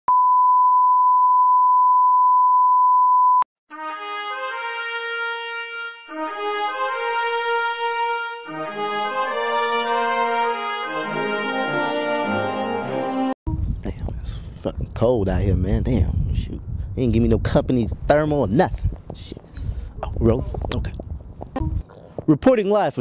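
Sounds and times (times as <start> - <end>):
brass fanfare music: 3.7 - 13.4.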